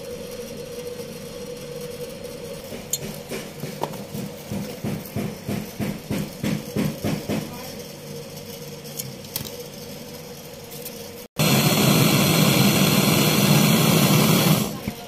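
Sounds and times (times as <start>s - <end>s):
rhythmic hand-tool strokes: 0.0s - 11.3s
torch flame hissing: 11.3s - 15.0s.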